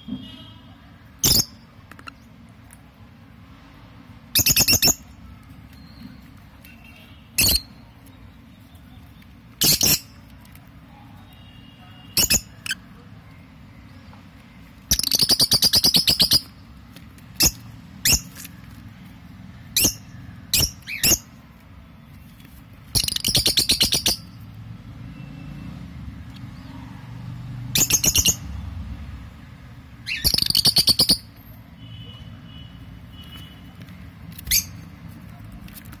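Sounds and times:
lovebirds chattering calls: 0:04.4 - 0:05.1, 0:05.7 - 0:10.3, 0:11.3 - 0:12.9, 0:14.9 - 0:16.6, 0:19.7 - 0:21.4, 0:22.9 - 0:24.4, 0:27.8 - 0:28.5, 0:30.0 - 0:31.3
bird chirps: 0:04.4 - 0:10.3, 0:14.9 - 0:16.6, 0:19.7 - 0:21.4, 0:22.0 - 0:24.4, 0:27.8 - 0:28.6, 0:30.0 - 0:33.5.

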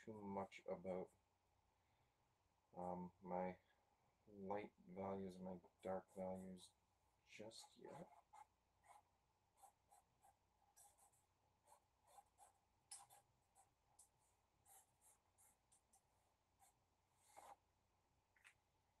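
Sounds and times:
marker scratching on paper: 0:07.5 - 0:09.0, 0:09.6 - 0:17.6.

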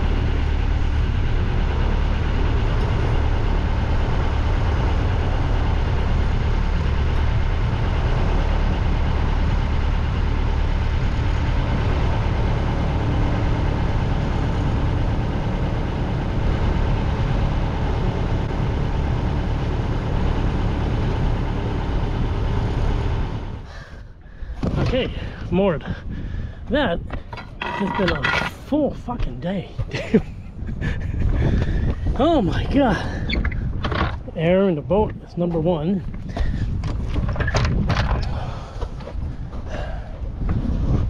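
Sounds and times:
boat engine idling: 0:00.0 - 0:29.2.

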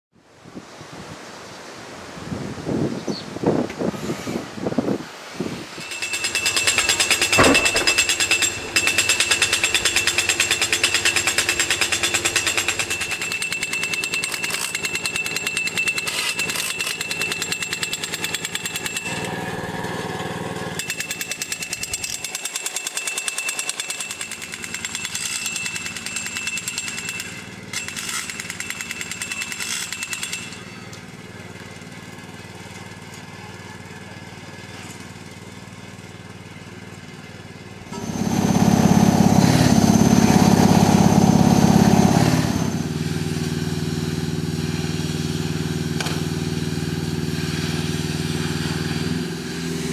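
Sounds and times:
jackhammer breaking concrete: 0:05.8 - 0:31.1, 0:37.9 - 0:49.9.

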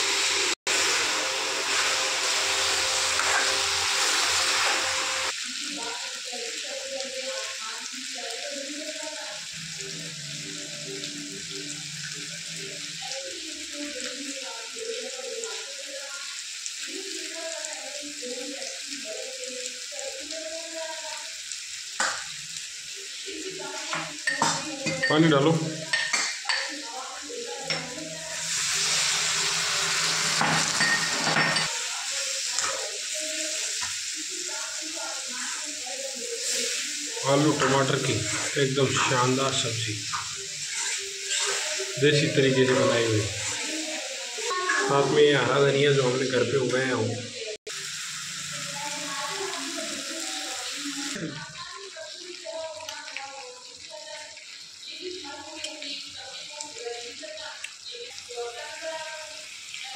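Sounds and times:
curry sizzling in a pan: 0:00.0 - 0:59.9
ladle stirring and scraping: 0:40.1 - 0:42.8
steady high hiss: 0:47.7 - 0:51.3.

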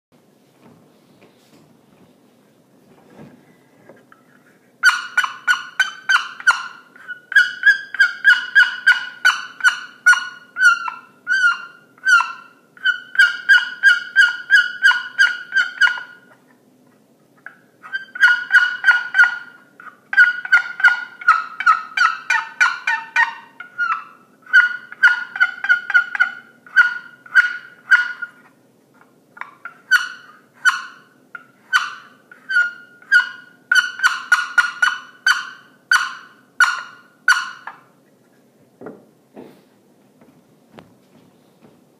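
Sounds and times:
box turkey call notes: 0:04.1 - 0:16.6, 0:17.4 - 0:38.1.

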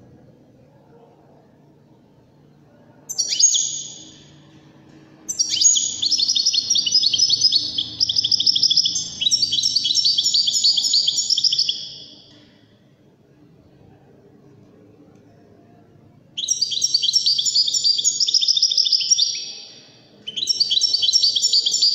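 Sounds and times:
finch singing: 0:03.1 - 0:04.3, 0:05.3 - 0:12.2, 0:16.4 - 0:21.9.

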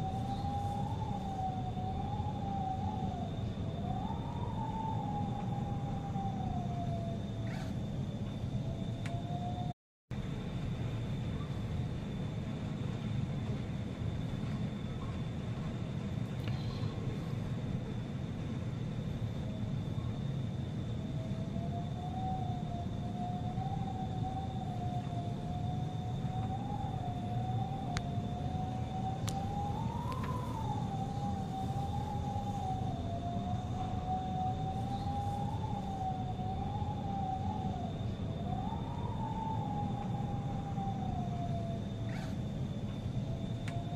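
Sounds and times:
thin wavering whistling tone: 0:00.0 - 0:09.8, 0:19.3 - 0:43.9
faint high whine: 0:00.0 - 0:43.9
wind and rain rumble: 0:00.0 - 0:43.9.

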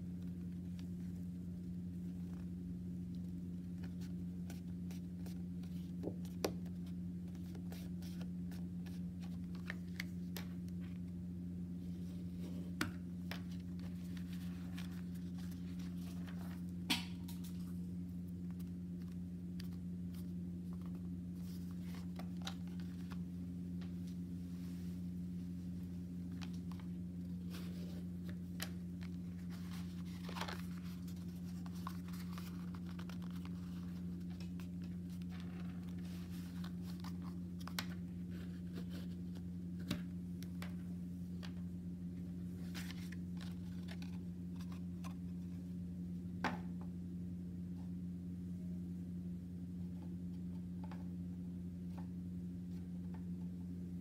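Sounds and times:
steady low hum: 0:00.0 - 0:54.0
paper folding and rustling: 0:03.2 - 0:11.0, 0:11.9 - 0:16.8, 0:18.5 - 0:23.3, 0:26.2 - 0:41.6, 0:42.5 - 0:45.6.

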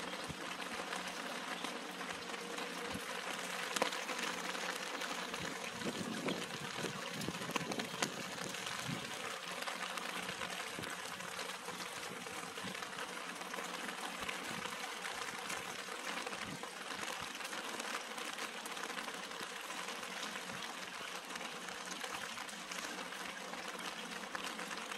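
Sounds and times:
rain pattering on leaves: 0:00.0 - 0:24.9.

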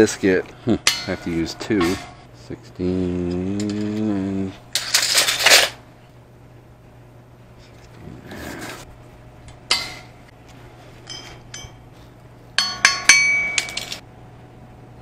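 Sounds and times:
metal pieces knocking and clanking: 0:00.8 - 0:02.2, 0:04.7 - 0:05.8, 0:12.6 - 0:14.0.

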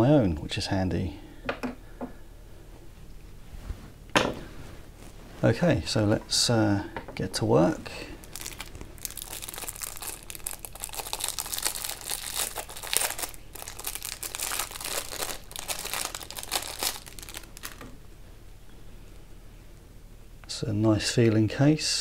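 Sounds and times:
plastic wrapping crinkling: 0:08.0 - 0:18.0.

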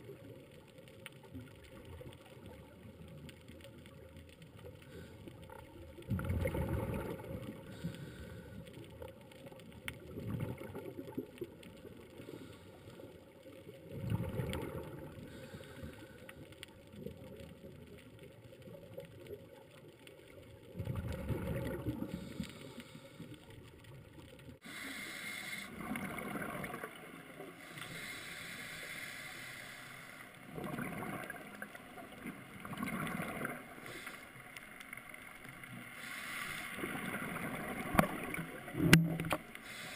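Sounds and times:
regulator bubbles gurgling underwater: 0:00.0 - 0:24.8, 0:25.4 - 0:28.8, 0:30.4 - 0:39.9
steady underwater rush: 0:01.7 - 0:19.0, 0:20.4 - 0:39.9
diver breathing out: 0:07.6 - 0:08.7, 0:15.2 - 0:16.4, 0:22.0 - 0:23.4, 0:24.6 - 0:26.0, 0:27.6 - 0:30.5, 0:33.8 - 0:34.4, 0:35.9 - 0:37.1, 0:39.6 - 0:39.9.

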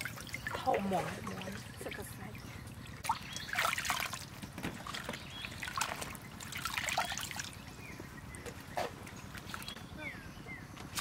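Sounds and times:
water splashing in basin: 0:00.0 - 0:02.2, 0:03.0 - 0:07.6
water trickling into basin: 0:00.0 - 0:07.8.

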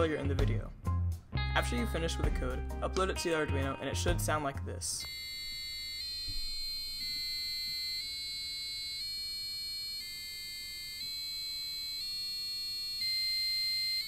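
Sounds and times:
piezo buzzer playing a scale: 0:05.0 - 0:14.0.

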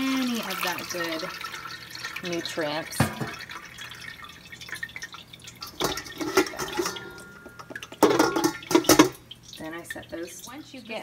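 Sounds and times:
water dripping into metal bowl: 0:00.0 - 0:11.0
colander knocking: 0:02.7 - 0:03.4, 0:05.8 - 0:09.2.

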